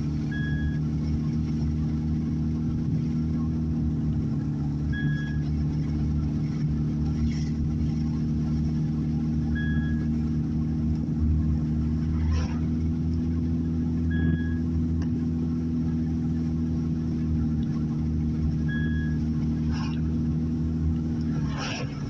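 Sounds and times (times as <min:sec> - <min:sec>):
car engine and road hum: 0:00.0 - 0:22.0
short high beep: 0:00.3 - 0:00.8, 0:04.8 - 0:05.5, 0:09.5 - 0:10.2, 0:14.0 - 0:14.8, 0:18.6 - 0:19.3.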